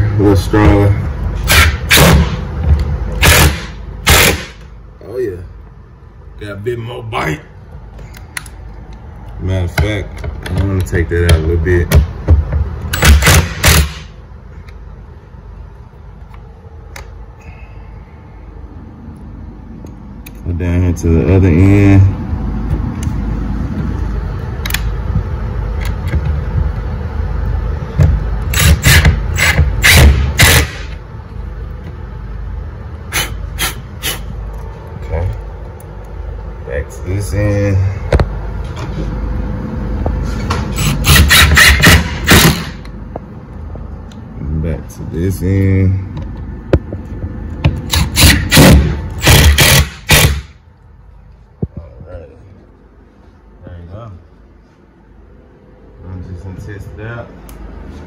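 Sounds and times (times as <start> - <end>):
impact driver hammering: 1.4 - 2.4, 3.2 - 4.6, 9.7 - 14.2, 28.0 - 31.0, 40.8 - 42.9, 47.6 - 50.6
cordless drill driving screw: 28.5 - 30.8, 40.8 - 42.6, 47.9 - 50.4.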